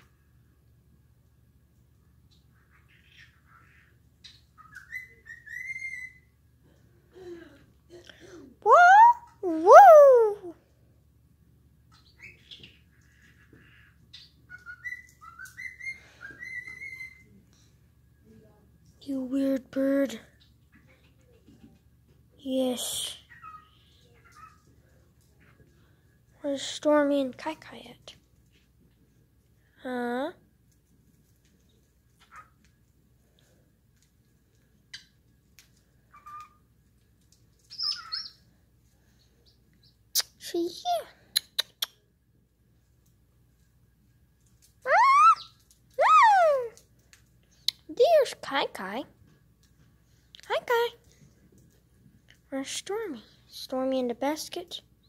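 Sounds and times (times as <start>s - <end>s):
cockatiel chirping and whistling: 4.3s - 6.2s, 14.2s - 17.3s, 37.7s - 38.4s, 44.9s - 46.5s.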